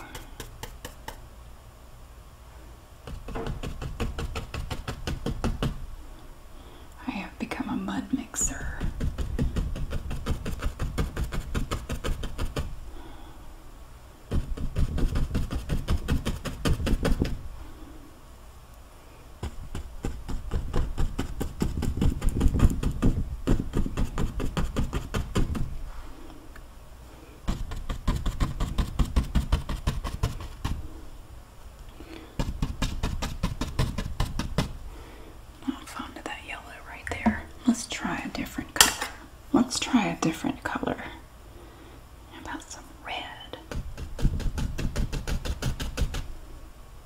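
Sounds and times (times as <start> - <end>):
paintbrush tapping on canvas: 0.0 - 1.2, 3.0 - 5.8, 8.7 - 12.7, 14.3 - 17.4, 27.5 - 30.8, 43.7 - 46.3.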